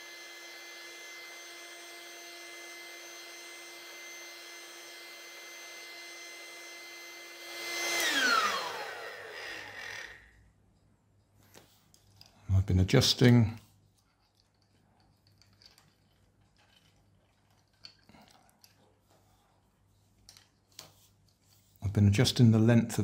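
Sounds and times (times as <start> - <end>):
electric air pump whining: 0.0 - 10.4.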